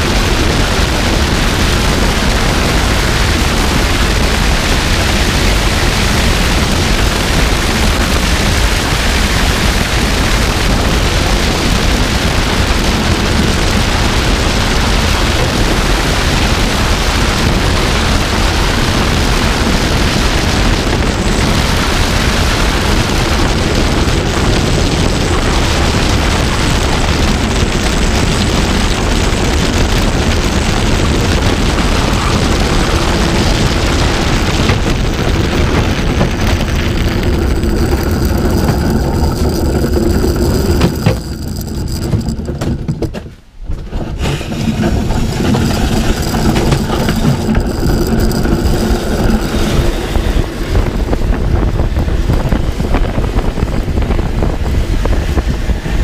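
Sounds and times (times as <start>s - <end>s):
sled rumbling on ice: 0.0s - 56.0s
wind against camera: 0.0s - 56.0s.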